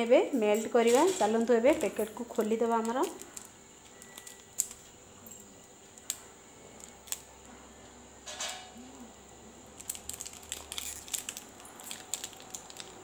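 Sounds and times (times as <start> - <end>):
plastic wrapper crinkling: 0.8 - 7.4, 9.7 - 13.0
wrapper tearing: 1.0 - 4.9, 6.8 - 7.3, 9.8 - 13.0.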